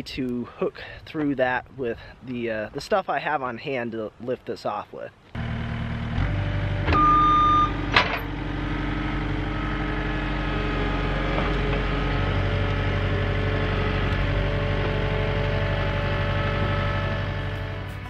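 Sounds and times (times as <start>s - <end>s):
track loader diesel engine: 5.3s - 18.0s
short beep: 6.9s - 7.8s.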